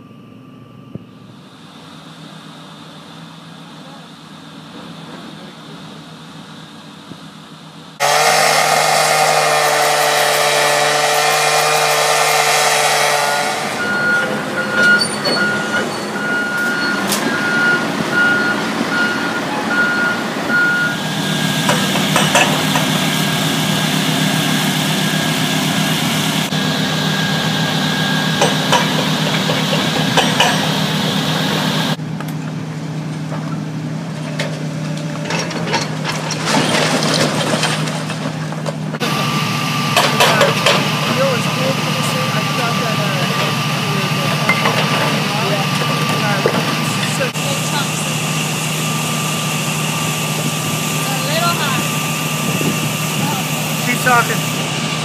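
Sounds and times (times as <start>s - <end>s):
reversing alarm beeping: 0.0s - 9.6s, 12.0s - 32.0s
excavator engine under load: 0.0s - 55.0s
cut-off saw cutting metal: 8.0s - 17.5s, 20.7s - 32.0s
masonry wall breaking: 35.3s - 39.0s.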